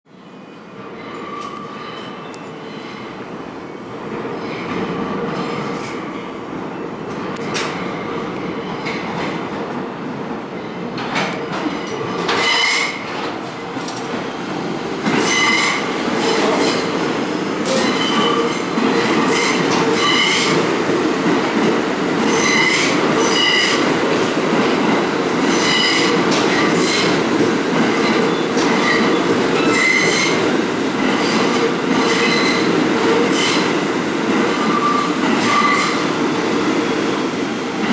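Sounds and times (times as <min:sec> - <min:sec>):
subway train rumbling: 0:00.1 - 0:37.9
wheels squealing on rails: 0:00.8 - 0:03.2, 0:15.2 - 0:20.6, 0:22.3 - 0:23.8, 0:25.4 - 0:27.1, 0:28.0 - 0:30.4, 0:31.2 - 0:32.7, 0:34.5 - 0:36.1.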